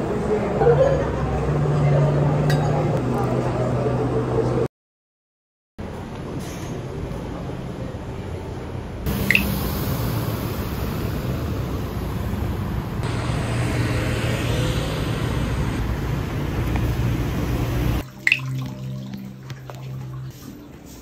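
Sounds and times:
low traffic hum: 0:00.0 - 0:04.7, 0:05.8 - 0:20.9
short high chirp: 0:09.2 - 0:09.6.

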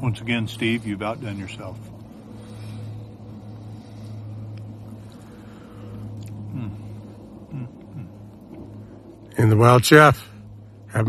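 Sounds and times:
steady low hum: 0:00.0 - 0:11.0
low voice murmur: 0:06.4 - 0:08.2.

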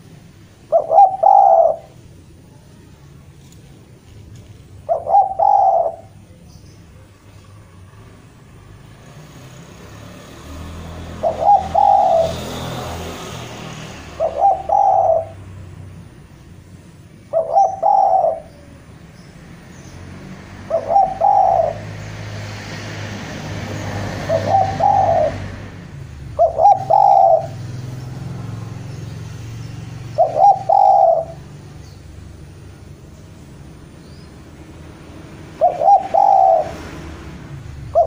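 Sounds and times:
dove cooing: 0:00.6 - 0:02.0, 0:04.8 - 0:06.3, 0:11.1 - 0:12.6, 0:14.0 - 0:15.6, 0:17.2 - 0:19.0, 0:20.6 - 0:22.0, 0:24.1 - 0:27.8, 0:28.5 - 0:31.6, 0:35.4 - 0:37.0, 0:37.8 - 0:38.0.

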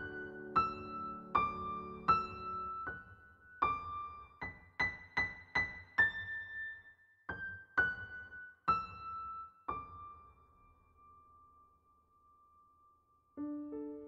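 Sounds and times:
slow piano melody: 0:00.0 - 0:14.0.

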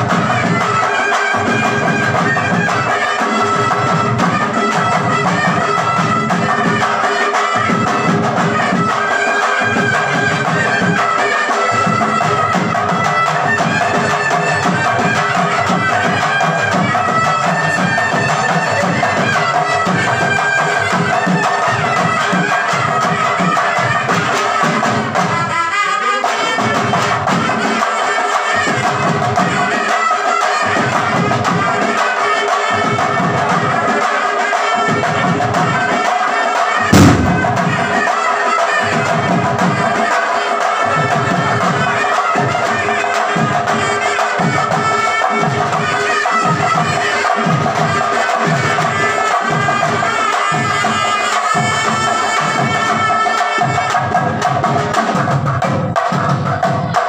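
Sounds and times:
drum beats: 0:00.0 - 0:57.0
reedy wind instrument: 0:00.0 - 0:57.0
sharp knock: 0:36.9 - 0:38.1.

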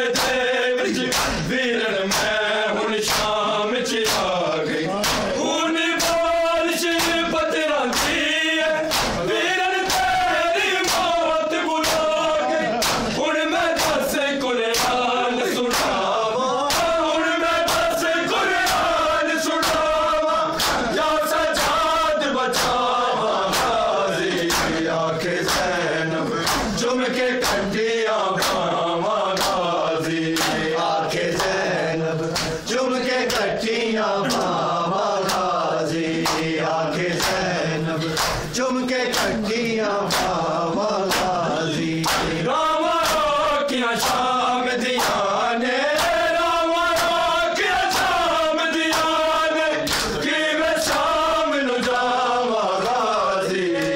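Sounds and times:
men chanting in unison: 0:00.0 - 0:53.9
hands slapping bare chests: 0:00.1 - 0:01.5, 0:02.1 - 0:02.4, 0:03.0 - 0:03.4, 0:04.0 - 0:05.4, 0:06.0 - 0:06.3, 0:07.0 - 0:07.3, 0:07.9 - 0:10.2, 0:10.8 - 0:11.2, 0:11.8 - 0:13.2, 0:13.8 - 0:14.0, 0:14.7 - 0:15.0, 0:15.7 - 0:17.0, 0:17.6 - 0:18.0, 0:19.6 - 0:19.9, 0:20.6 - 0:20.9, 0:22.5 - 0:22.8, 0:23.5 - 0:23.8, 0:24.4 - 0:24.8, 0:25.4 - 0:25.8, 0:26.4 - 0:26.8, 0:27.4 - 0:27.7, 0:28.4 - 0:28.7, 0:29.4 - 0:29.7, 0:30.3 - 0:30.7, 0:32.2 - 0:32.6, 0:34.3 - 0:34.6, 0:35.2 - 0:35.5, 0:36.2 - 0:36.5, 0:37.2 - 0:37.5, 0:38.1 - 0:38.5, 0:39.1 - 0:39.4, 0:40.1 - 0:40.4, 0:41.1 - 0:41.4, 0:42.0 - 0:42.4, 0:43.0 - 0:43.3, 0:44.9 - 0:45.3, 0:46.0 - 0:46.2, 0:47.8 - 0:48.2, 0:48.9 - 0:49.2, 0:49.9 - 0:50.2.

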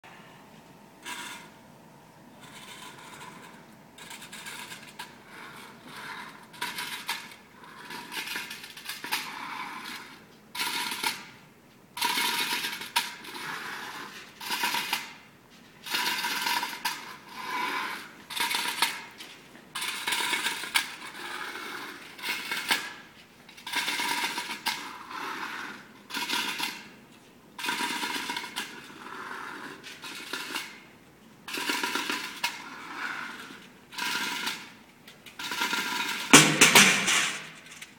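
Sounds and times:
metal pails struck as percussion: 0:36.3 - 0:37.9.

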